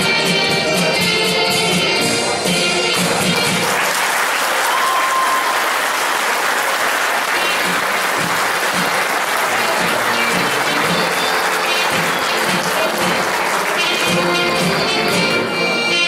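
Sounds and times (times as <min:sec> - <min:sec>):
dance music: 0:00.0 - 0:03.8, 0:07.3 - 0:16.0
audience applauding: 0:02.9 - 0:15.4.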